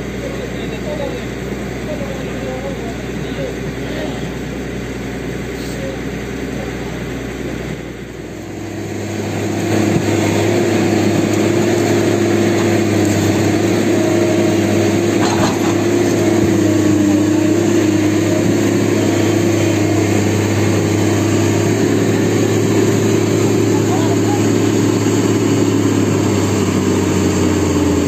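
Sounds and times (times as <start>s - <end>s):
excavator diesel engine running: 0.0s - 28.0s.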